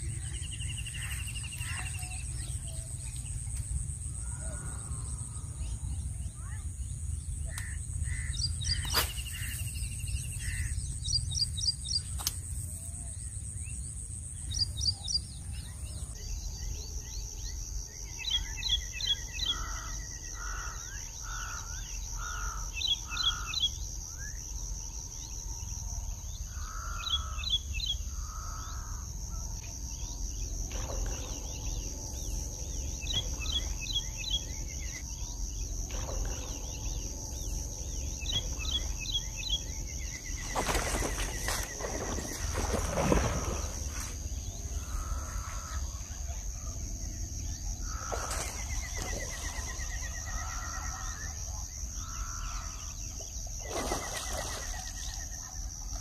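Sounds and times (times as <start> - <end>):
birds chirping: 0.0 - 12.3, 30.0 - 55.5
lower bird calls: 35.9 - 46.4.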